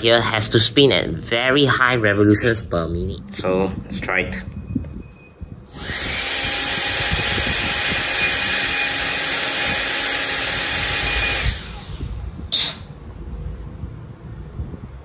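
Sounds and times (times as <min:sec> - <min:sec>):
vacuum motor high whine: 0:05.7 - 0:12.6.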